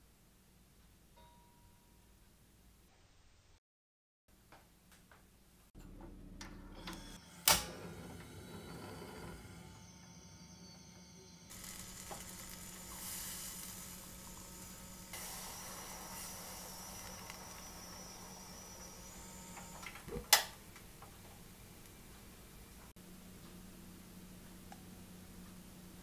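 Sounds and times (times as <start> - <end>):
gas burner hissing: 6.9 - 21.3.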